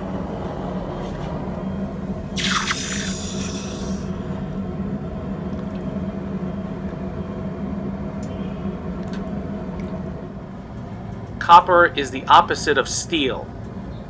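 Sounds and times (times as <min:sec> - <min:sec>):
forge humming: 0:00.0 - 0:14.0
hot metal quenched in water hissing: 0:02.3 - 0:04.1.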